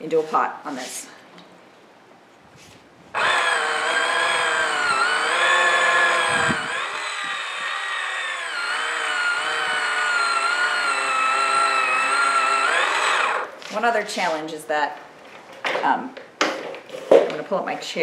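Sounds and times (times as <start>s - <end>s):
pottery wheel motor whirring: 3.1s - 13.6s.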